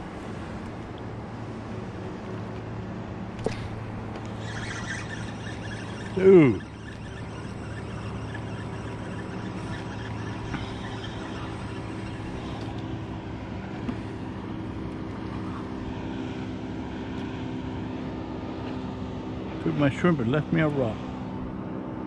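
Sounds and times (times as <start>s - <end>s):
motor engine droning: 0.0s - 22.0s.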